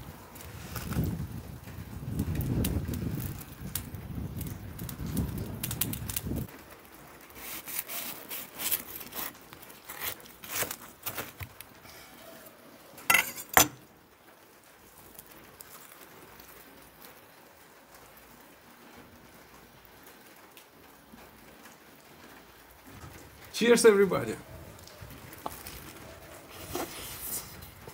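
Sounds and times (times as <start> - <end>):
knife sawing through bread bun: 7.4 - 11.4.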